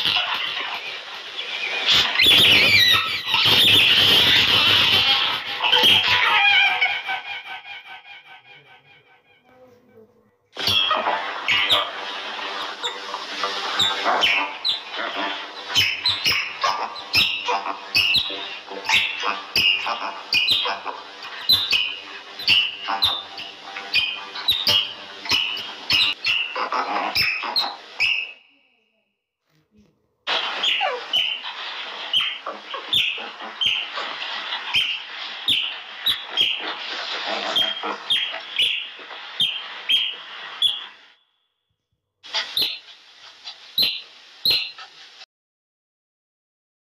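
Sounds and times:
otter high-pitched chirps: 0.0s - 8.0s, 10.6s - 28.5s, 30.3s - 41.1s, 42.3s - 44.9s
small mammal squeaking: 1.6s - 7.2s, 10.6s - 12.0s, 12.6s - 28.4s, 30.5s - 31.5s, 32.1s - 41.0s, 42.4s - 42.9s, 43.8s - 44.9s.

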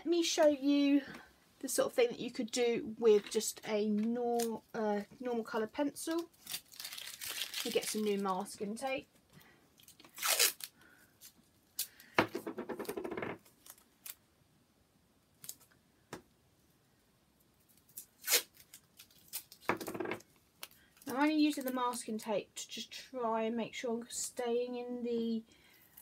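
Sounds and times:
masking tape ripping: 6.1s - 8.3s, 9.9s - 12.0s, 17.7s - 20.0s.

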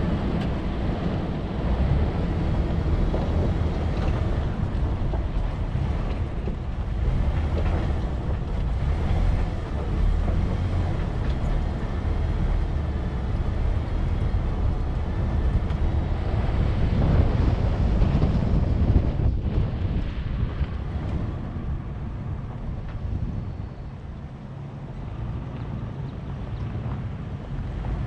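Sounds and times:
vehicle engine and tyres rumbling: 0.0s - 28.0s
wind buffeting microphone: 0.0s - 28.0s.

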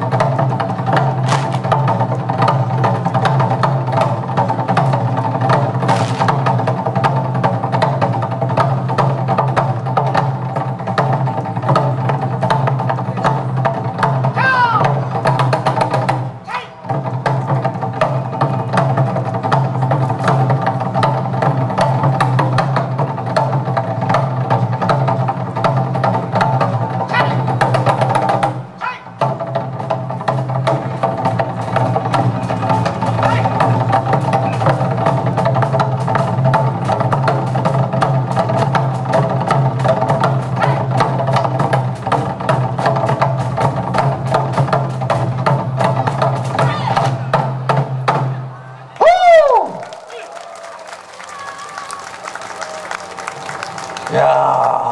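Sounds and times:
barrel drums struck fast: 0.0s - 48.4s.

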